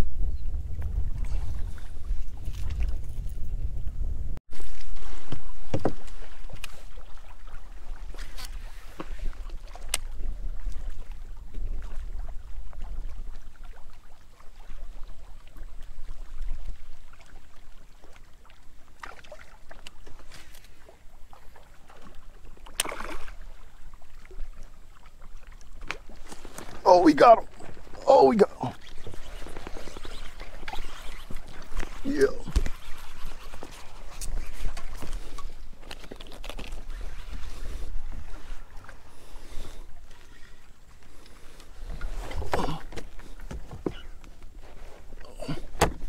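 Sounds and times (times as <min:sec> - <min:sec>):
water lapping against hull: 0:00.1 - 0:03.9, 0:04.5 - 0:46.0
knocks and splashes: 0:04.5 - 0:11.0, 0:21.9 - 0:23.6, 0:42.0 - 0:44.4, 0:45.2 - 0:46.0.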